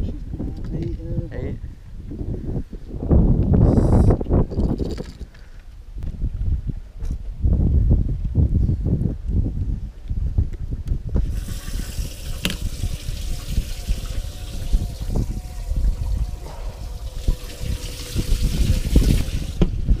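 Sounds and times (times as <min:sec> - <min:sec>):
wind on microphone: 0:00.0 - 0:20.0
pump spraying water: 0:11.2 - 0:19.8.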